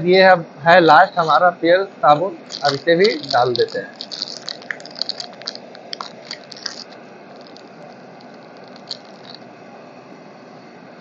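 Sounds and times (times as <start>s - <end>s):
soap frying in hot oil: 2.4s - 9.4s.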